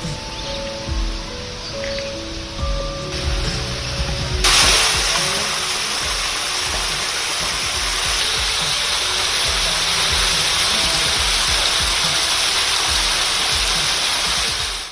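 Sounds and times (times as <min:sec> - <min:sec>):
faint music: 0:00.0 - 0:14.9
waterfall splashing into a pond: 0:03.1 - 0:14.9.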